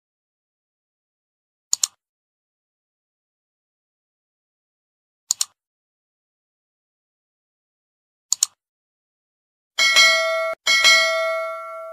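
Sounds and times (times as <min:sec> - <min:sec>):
computer mouse clicks: 0:01.7 - 0:02.0, 0:05.3 - 0:05.6, 0:08.3 - 0:08.6
bright bell ding: 0:09.8 - 0:11.9.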